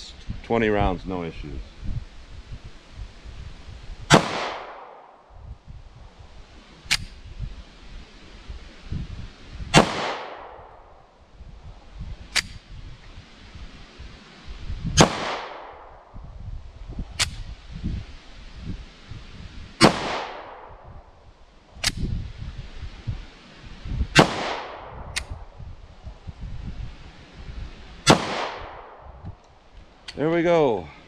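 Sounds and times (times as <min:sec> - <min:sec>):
pistol shots with echo: 0:04.1 - 0:05.1, 0:09.8 - 0:10.6, 0:28.1 - 0:29.0.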